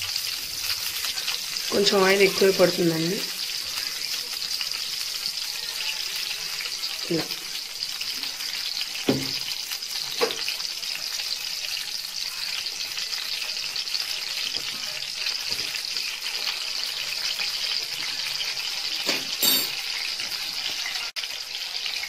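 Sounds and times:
oil sizzling: 0:00.0 - 0:22.0
metal spoon knocking on pan: 0:09.0 - 0:09.4, 0:19.0 - 0:19.8.

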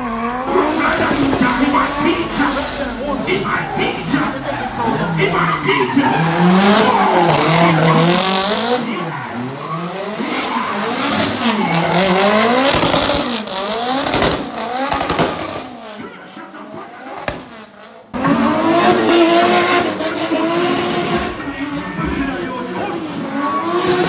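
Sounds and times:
car engine revving: 0:00.0 - 0:24.0
tyres squealing: 0:00.5 - 0:16.0.

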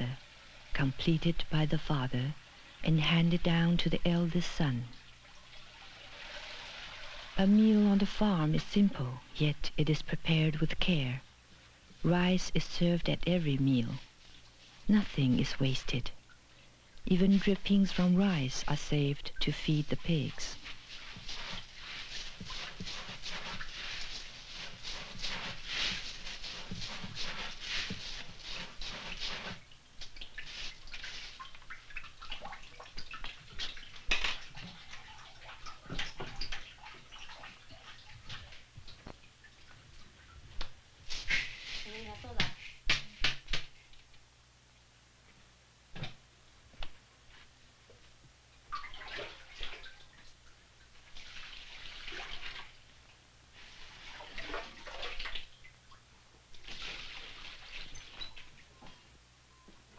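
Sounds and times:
rice and water sloshing in a wok: 0:05.0 - 0:07.4, 0:20.6 - 0:38.7, 0:51.0 - 0:52.9, 0:53.5 - 0:55.5, 0:56.6 - 0:58.5.

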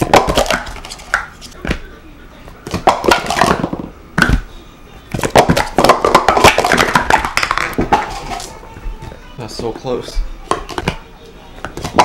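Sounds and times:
plastic cups clattering: 0:00.0 - 0:01.9, 0:02.6 - 0:04.4, 0:05.1 - 0:08.5, 0:11.6 - 0:12.0.

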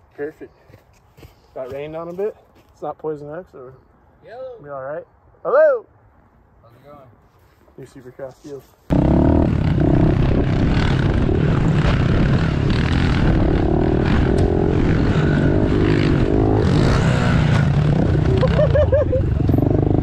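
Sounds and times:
dirt bike engines revving: 0:08.9 - 0:20.0.

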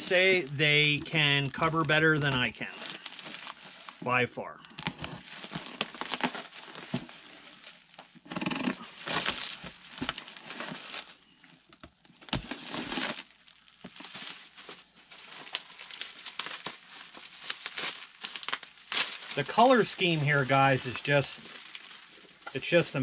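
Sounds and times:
plastic packaging crinkling: 0:00.0 - 0:04.0, 0:04.7 - 0:08.2, 0:08.8 - 0:23.0.

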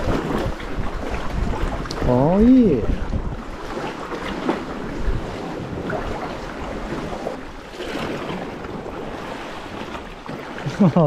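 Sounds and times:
wind noise on microphone: 0:00.0 - 0:10.1
paddle splashing: 0:00.0 - 0:11.0
water sloshing: 0:00.0 - 0:11.0.

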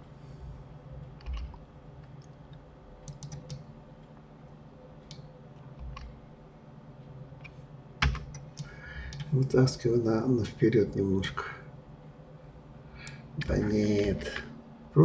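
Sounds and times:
faint room tone: 0:00.0 - 0:15.0
keyboard keys pressed: 0:08.0 - 0:08.4.

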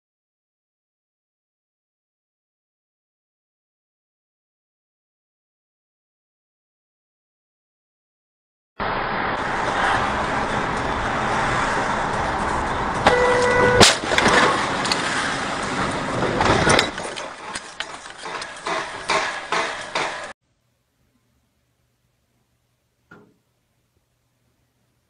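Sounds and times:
car road noise: 0:08.8 - 0:20.4
car horn blast: 0:13.0 - 0:14.0
knocks and rattles: 0:14.0 - 0:20.3.

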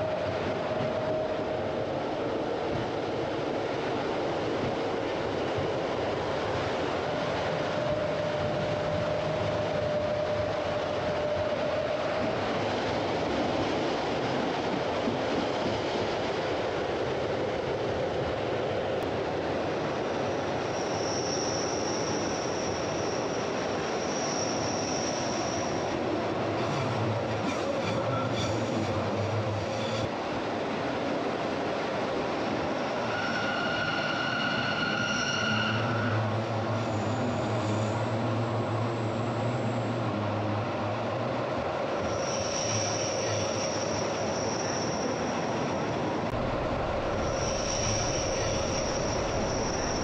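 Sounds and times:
train wheels rumbling on rails: 0:00.0 - 0:50.0
high wheel squeal: 0:20.7 - 0:26.0, 0:26.6 - 0:30.1, 0:32.7 - 0:38.2, 0:42.0 - 0:45.9, 0:47.1 - 0:50.0.

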